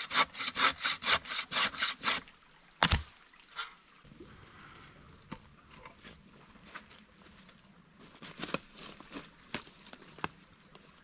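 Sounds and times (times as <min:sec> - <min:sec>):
footsteps on dry leaves and twigs: 0:06.0 - 0:11.0.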